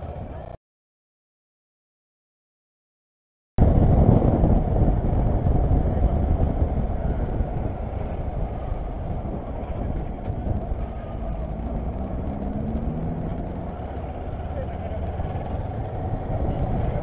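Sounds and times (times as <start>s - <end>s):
motorcycle engine rumble: 3.6s - 17.0s
wind rush: 3.6s - 17.0s.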